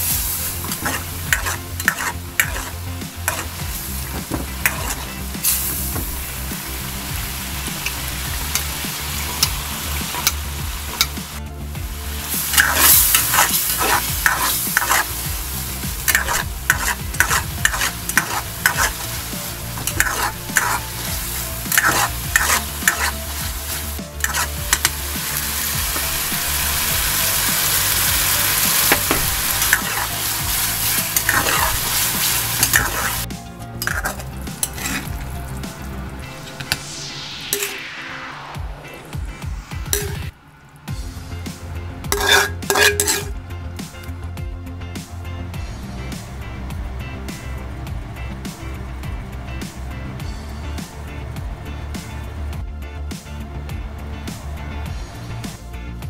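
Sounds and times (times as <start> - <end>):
food sizzling in a wok: 0.0 - 43.4
metal utensil scraping pan: 0.4 - 5.9, 7.8 - 11.2, 12.4 - 15.3, 15.9 - 26.9, 28.0 - 35.6, 37.5 - 37.8, 39.9 - 40.3, 42.0 - 43.4.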